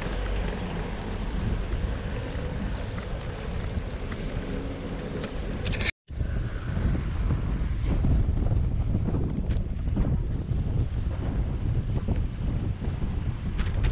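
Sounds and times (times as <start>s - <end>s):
wind buffeting microphone: 0.0s - 13.9s.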